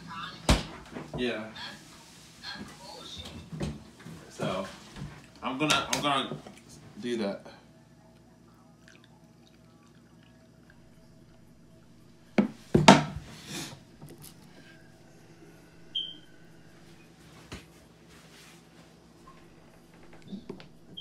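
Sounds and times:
high chirp: 0:15.8 - 0:16.7
soft rustling: 0:17.1 - 0:19.9.

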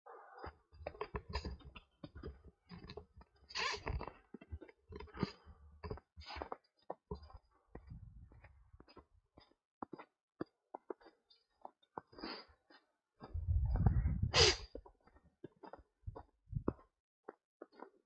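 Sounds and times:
low rumble: 0:13.4 - 0:14.4.

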